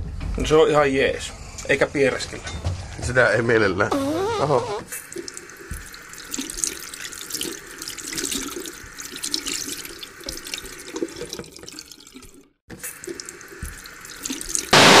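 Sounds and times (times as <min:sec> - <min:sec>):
water running and splashing: 0:04.6 - 0:15.0.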